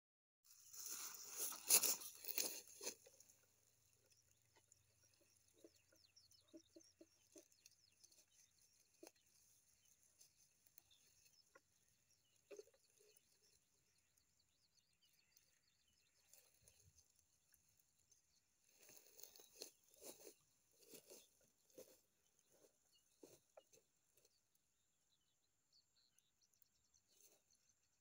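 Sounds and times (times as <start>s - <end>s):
rustling: 0.5s - 3.6s, 18.7s - 24.3s
dry grass crackling: 0.5s - 24.6s.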